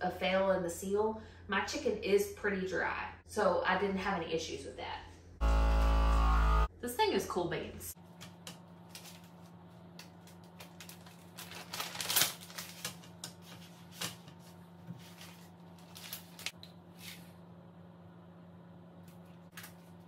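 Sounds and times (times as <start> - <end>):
plastic bag rustling: 8.8 - 17.4.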